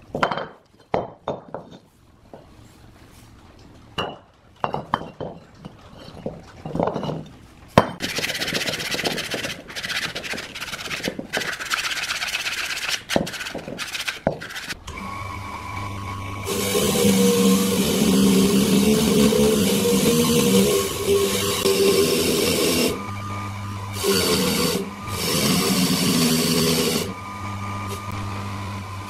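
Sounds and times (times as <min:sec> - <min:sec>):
abrasive paper rubbing metal: 0:08.0 - 0:14.8
electric motor humming: 0:14.9 - 0:29.0.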